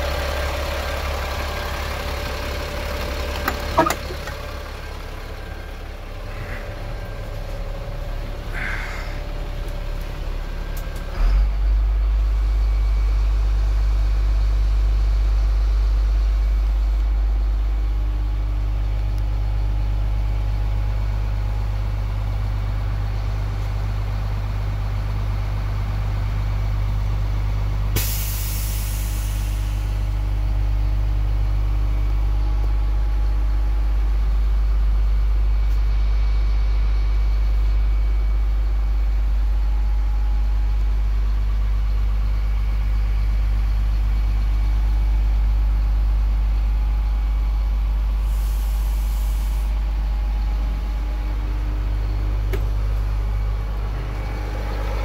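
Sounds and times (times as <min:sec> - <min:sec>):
truck engine running: 0:00.0 - 0:55.0
air release hiss: 0:28.0 - 0:29.8, 0:48.2 - 0:49.8.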